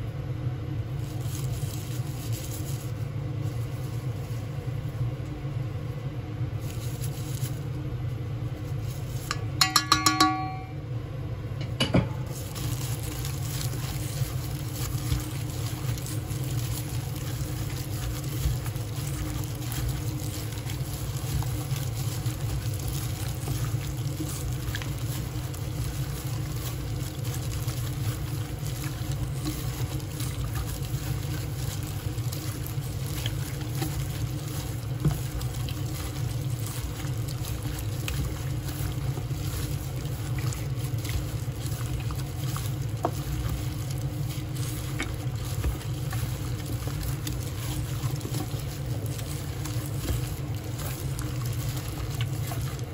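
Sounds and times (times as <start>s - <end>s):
low hum: 0.0s - 52.8s
wet squishing of meat: 0.1s - 9.4s, 12.2s - 52.9s
clicks against metal pot: 9.3s - 10.8s.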